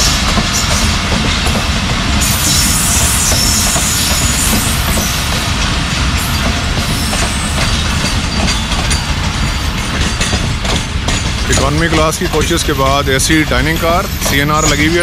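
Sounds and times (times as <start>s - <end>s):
train wheels rumbling on track: 0.0s - 15.0s
wheels clicking over rail joints: 6.3s - 12.8s.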